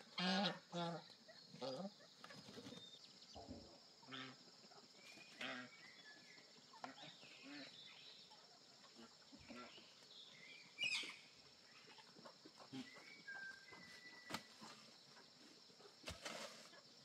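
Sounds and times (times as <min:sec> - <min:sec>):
chickens and ducks clucking: 0:00.0 - 0:17.0
insects droning: 0:00.0 - 0:17.0.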